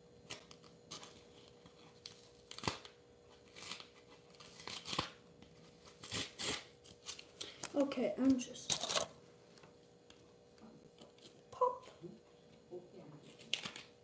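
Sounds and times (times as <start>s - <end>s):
foil wrapper crinkling and tearing: 0.2s - 5.2s, 5.8s - 7.6s, 13.3s - 14.0s.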